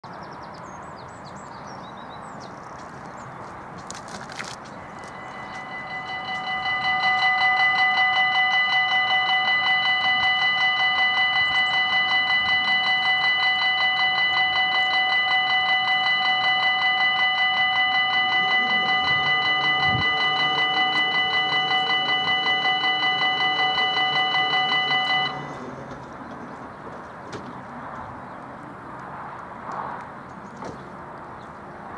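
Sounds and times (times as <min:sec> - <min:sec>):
level crossing warning bell: 0:04.0 - 0:27.2.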